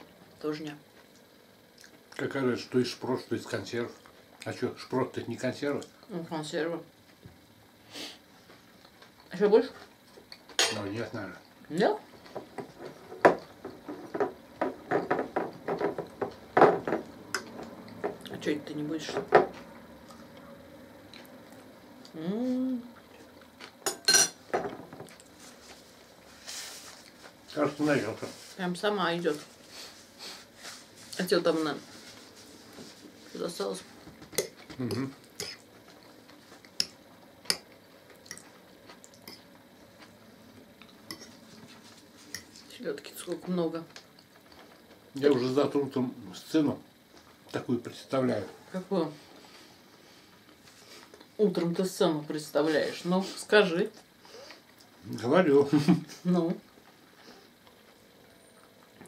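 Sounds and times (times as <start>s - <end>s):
chewing: 1.0s - 2.2s, 34.4s - 40.2s
forks knocking on dishes: 12.4s - 17.5s.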